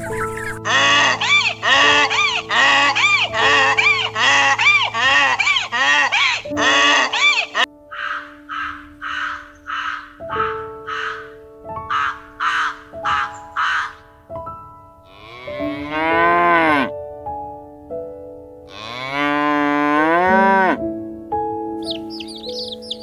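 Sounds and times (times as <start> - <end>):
chicks peeping: 0.0 - 7.7, 21.8 - 23.0
soft piano music: 0.0 - 23.0
cow mooing: 0.6 - 7.7, 15.1 - 16.9, 18.7 - 20.8
raven cawing: 0.6 - 14.2.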